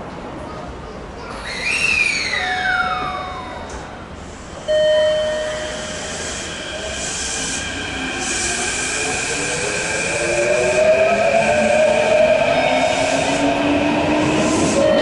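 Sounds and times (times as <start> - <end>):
loud steady tone: 4.7 - 7.6, 14.5 - 15.0.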